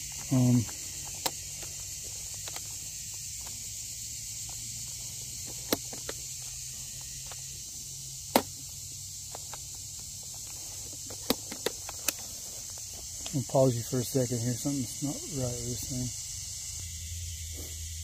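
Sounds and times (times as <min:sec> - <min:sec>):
chainsaw controls clicking: 0:00.0 - 0:07.6, 0:09.2 - 0:13.4
insects hissing: 0:00.0 - 0:18.0.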